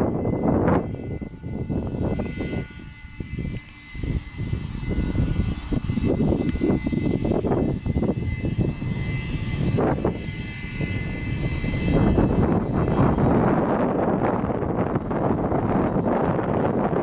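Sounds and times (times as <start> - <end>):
faint high whine: 0.0 - 17.0
wind buffeting microphone: 0.0 - 17.0.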